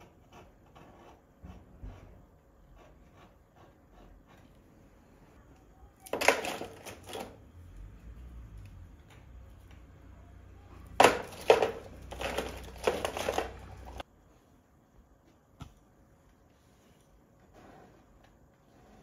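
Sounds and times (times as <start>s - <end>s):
painting supplies clattering: 6.0s - 7.6s, 10.8s - 14.0s.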